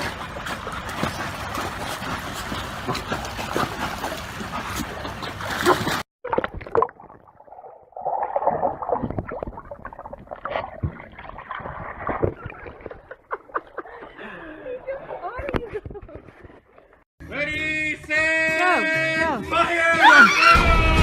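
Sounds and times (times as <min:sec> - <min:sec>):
water splashing and churning: 0:00.0 - 0:15.6.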